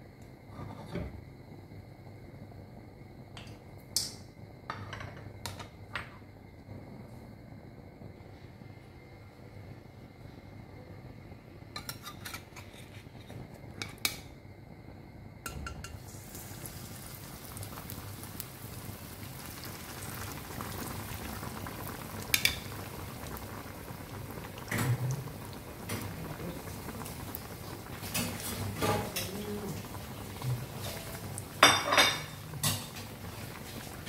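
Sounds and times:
oil sizzling: 0:15.4 - 0:34.0.

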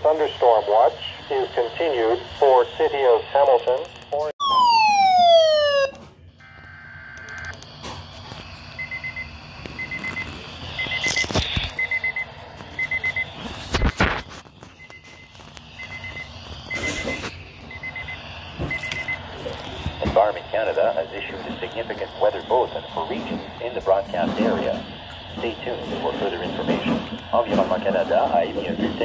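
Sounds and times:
falling electronic tone: 0:04.4 - 0:07.5.

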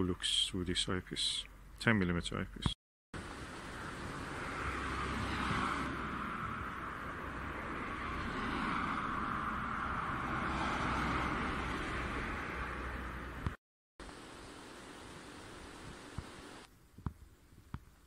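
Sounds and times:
steady outdoor hiss-like rush: 0:03.2 - 0:09.4, 0:13.3 - 0:18.0.

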